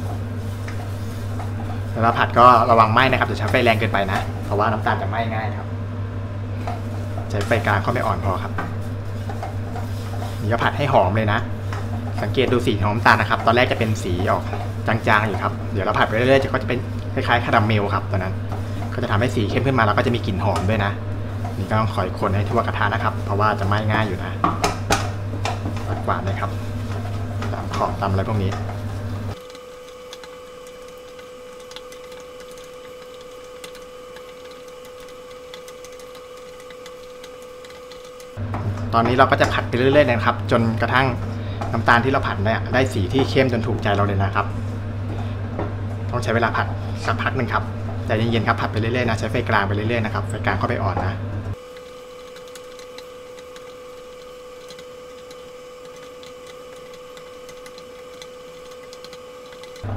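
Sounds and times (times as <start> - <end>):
wooden spatula scraping a pot: 0.0 - 2.0, 8.6 - 10.6
wooden spoon scraping a pot: 0.0 - 2.6, 6.6 - 10.9, 11.5 - 16.4, 22.4 - 29.4
electrical hum: 0.0 - 59.9
sugar ticking and crackling: 18.6 - 41.0, 51.5 - 59.9.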